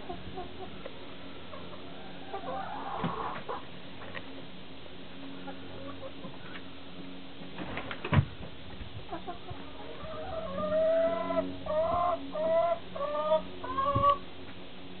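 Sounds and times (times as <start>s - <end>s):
chickens calling: 0.0s - 3.8s, 5.4s - 6.7s, 9.0s - 14.3s.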